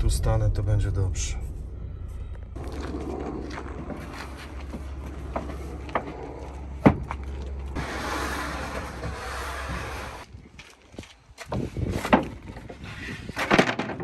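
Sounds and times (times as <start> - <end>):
board sliding across van floor: 2.6 - 10.3
wood knocking on wood: 4.6 - 7.5.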